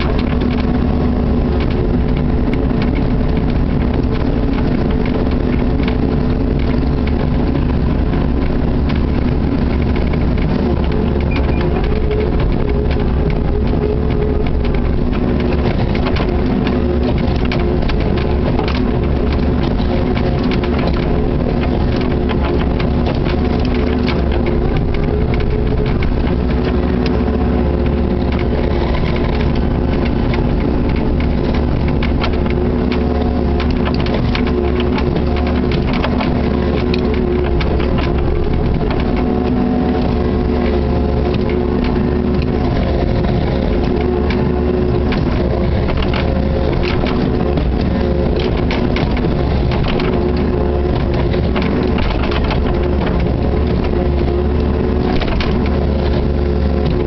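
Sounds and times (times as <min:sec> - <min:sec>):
diesel engine running: 0:00.0 - 0:57.0
bucket cracking and scraping ice: 0:06.9 - 0:57.0.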